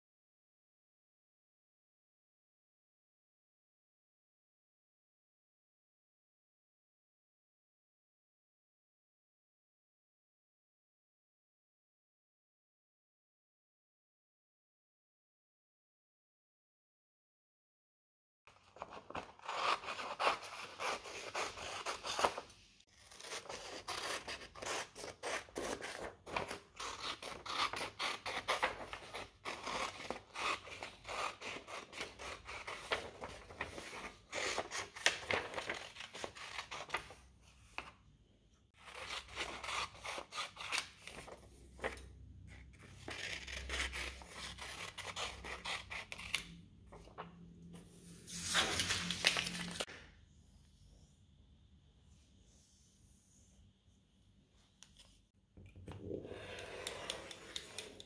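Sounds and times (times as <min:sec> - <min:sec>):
scissors cutting paper: 0:18.7 - 0:37.2, 0:38.8 - 0:42.1, 0:42.7 - 0:46.6, 0:56.5 - 0:58.0.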